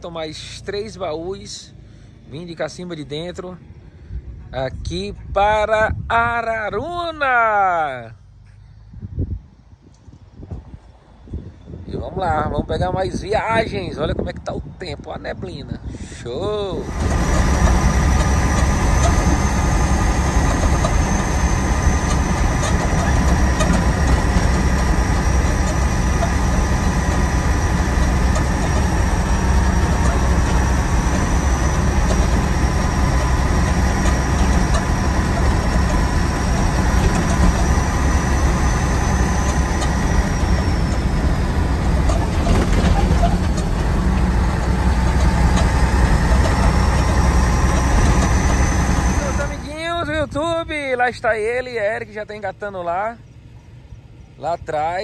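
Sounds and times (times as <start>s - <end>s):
truck engine droning: 0.0s - 8.4s, 16.3s - 55.0s
road noise: 0.0s - 55.0s
faint high whine: 16.6s - 43.6s, 44.6s - 51.0s.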